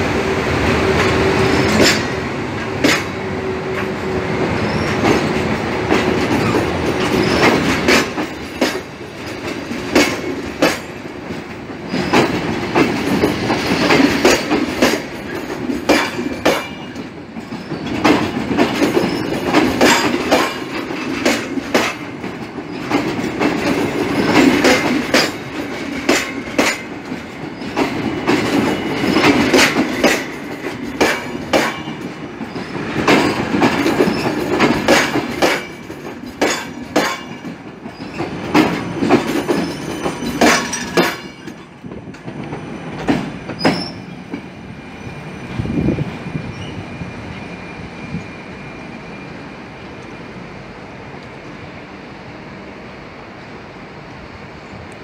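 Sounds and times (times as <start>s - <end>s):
train rolling rumble: 0.0s - 55.0s
train wheels clicking over rail joints: 0.2s - 47.4s
faint wheel squeal: 46.4s - 49.4s.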